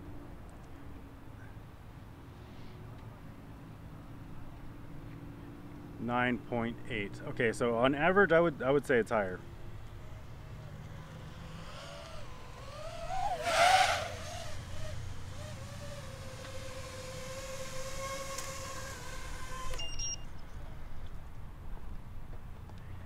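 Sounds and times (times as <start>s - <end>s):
quadcopter propeller whine: 9.1s - 20.8s
high beep: 19.8s - 20.2s.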